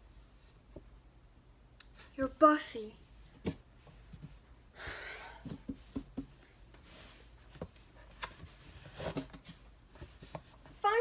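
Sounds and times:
light knocks and taps: 5.5 - 6.4.

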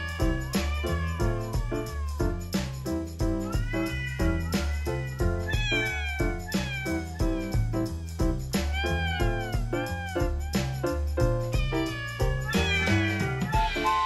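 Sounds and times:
cat meowing: 0.0 - 14.0
upbeat background music: 0.2 - 14.0.

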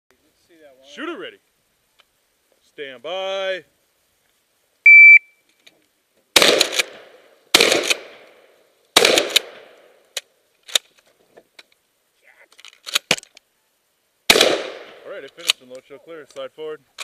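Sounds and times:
shot timer beep: 4.9 - 5.3
shotgun shots echoing: 6.4 - 8.4, 9.0 - 9.9, 14.3 - 15.2.

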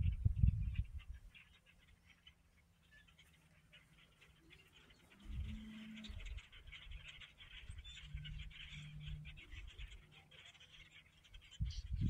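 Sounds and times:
flock of birds twittering: 0.0 - 12.0.

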